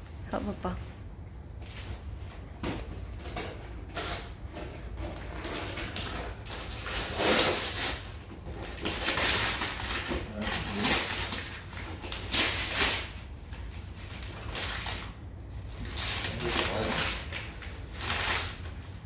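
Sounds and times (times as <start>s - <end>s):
wrapping paper tearing: 5.2s - 19.0s.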